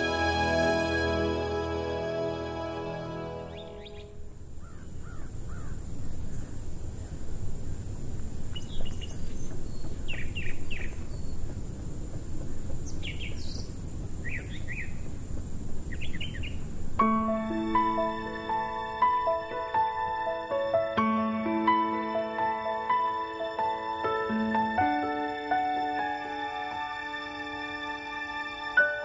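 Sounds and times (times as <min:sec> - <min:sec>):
music: 0:00.0 - 0:04.3, 0:17.0 - 0:29.0
birds chirping: 0:00.0 - 0:20.8.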